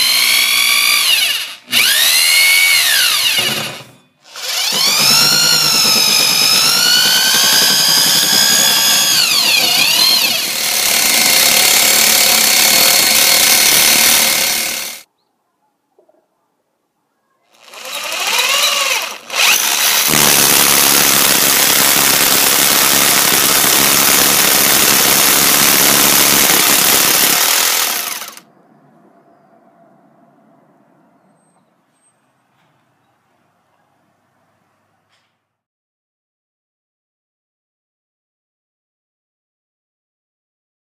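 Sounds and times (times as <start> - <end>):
rotary hammer drilling through wall: 0.0 - 15.1, 17.6 - 28.4.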